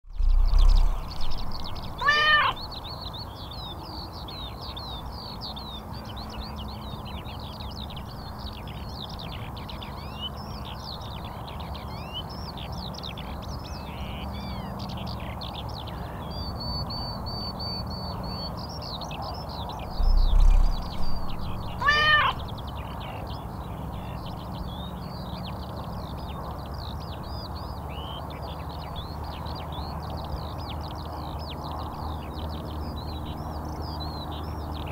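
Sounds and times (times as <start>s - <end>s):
birds chirping: 0.1s - 34.9s
cat meowing: 2.0s - 2.6s, 21.7s - 22.4s.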